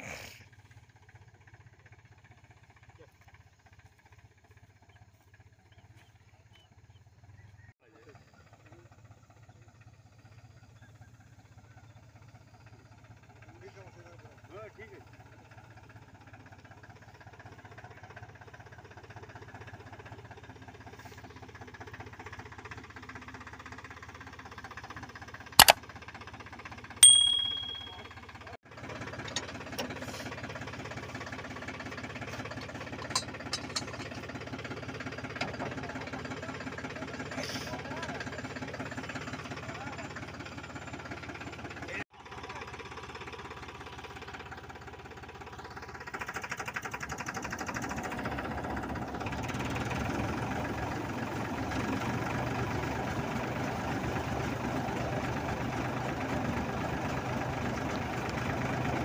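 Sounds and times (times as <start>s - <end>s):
tractor diesel engine idling: 0.4s - 27.0s, 28.1s - 59.0s
sharp metal clank: 27.0s - 28.1s
ringing metal strike: 27.0s - 28.2s.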